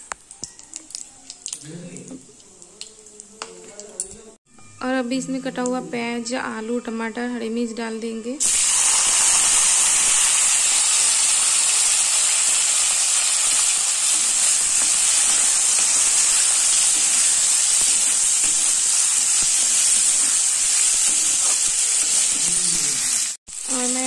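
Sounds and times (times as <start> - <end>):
vegetables sizzling in hot oil: 8.4 - 24.0.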